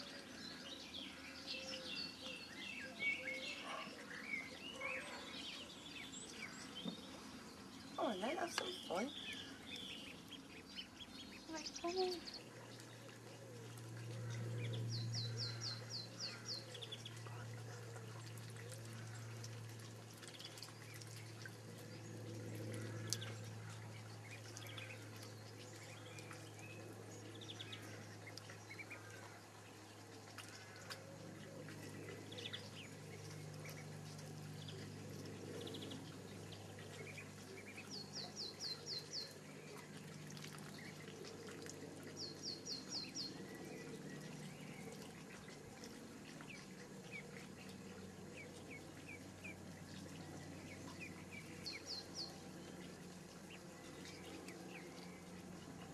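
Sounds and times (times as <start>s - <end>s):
low steady hum: 0.0s - 55.9s
ducklings peeping: 3.3s - 55.9s
water splashing and dripping: 6.6s - 55.9s.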